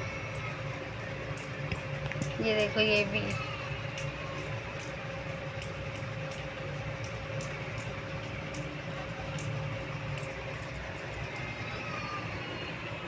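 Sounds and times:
low mechanical hum: 0.0s - 13.0s
thin constant tone: 0.0s - 13.0s.

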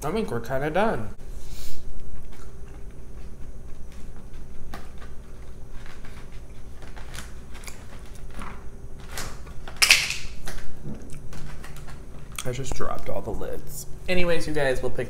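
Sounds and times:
faint hum: 0.0s - 15.0s
chewing and mouth sounds: 10.8s - 13.1s.

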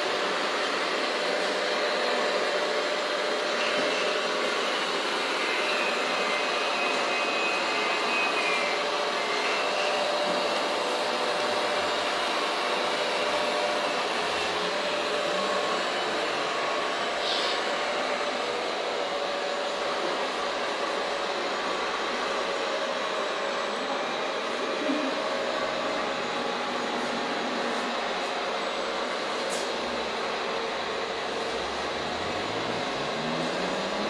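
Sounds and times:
electric drive whirring: 29.7s - 34.0s.

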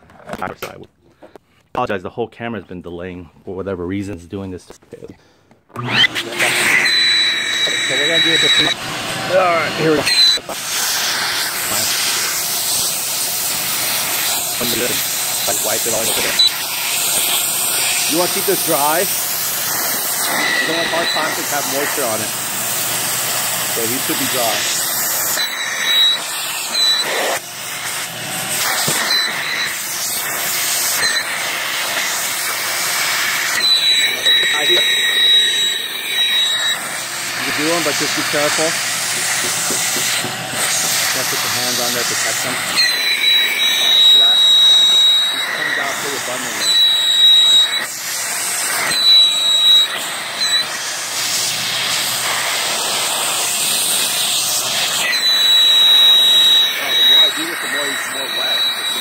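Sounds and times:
electric blower rushing air: 5.7s - 59.0s
hiss of vacuum brake bleeder: 7.9s - 59.0s
high whine: 13.8s - 47.9s.

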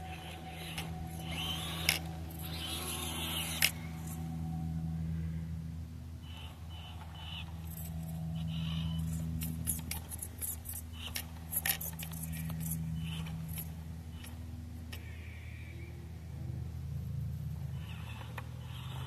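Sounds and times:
small electric motor whirring: 0.0s - 4.9s, 6.4s - 14.4s.

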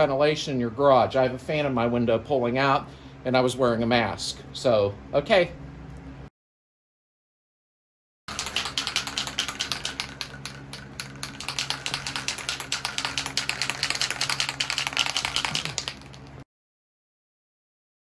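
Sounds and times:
low fan hum: 0.0s - 6.3s, 8.3s - 16.4s
aerosol can mixing ball rattling: 8.3s - 16.4s.

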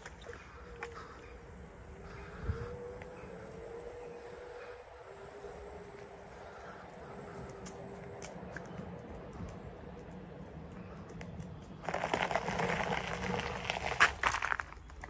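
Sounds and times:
footsteps on gravel: 11.2s - 15.0s.

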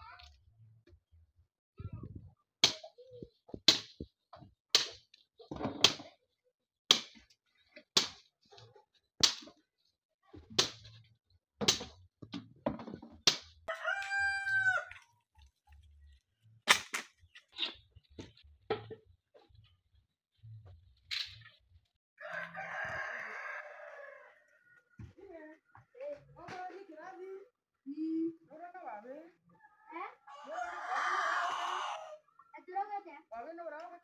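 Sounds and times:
rooster crowing: 13.7s - 15.0s, 22.2s - 24.9s, 29.8s - 32.2s
firewood sticks cracking: 16.6s - 18.4s.

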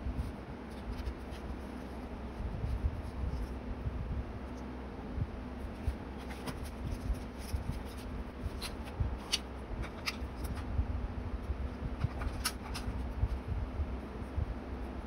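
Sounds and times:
paper rustling: 0.2s - 3.6s, 5.6s - 10.7s, 12.0s - 13.4s.

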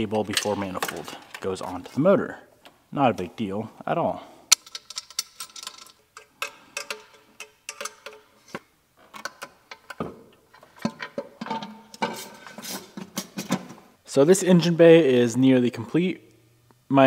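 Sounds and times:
metallic clicks and clinks: 4.5s - 8.3s.

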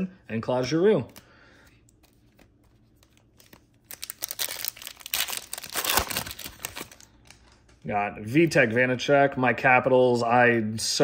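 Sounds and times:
trading cards scraping and rustling: 1.8s - 7.6s.

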